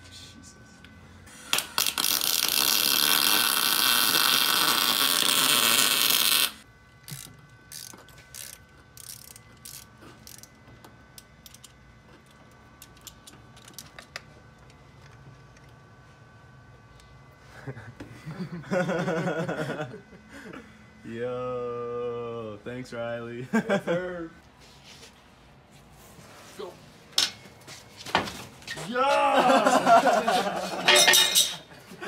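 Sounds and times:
ratchet wrench clicking: 7.1s - 10.6s, 11.2s - 11.8s.

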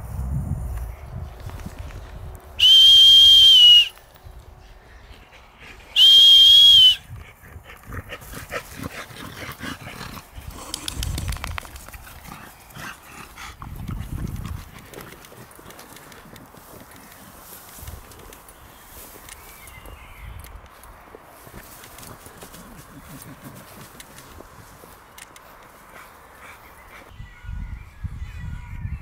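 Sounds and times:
high whistle blasts: 2.6s - 4.0s, 6.0s - 7.0s
dogs running through grass: 6.7s - 27.1s.

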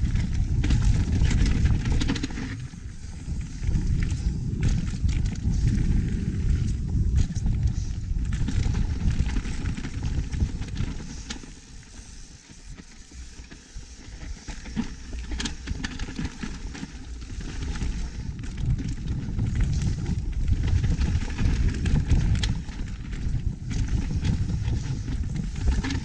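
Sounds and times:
wind rushing over microphone: 0.0s - 11.4s, 17.2s - 26.0s
bike chain and frame rattling: 0.0s - 26.0s
bike tyres on dirt: 0.0s - 26.0s.

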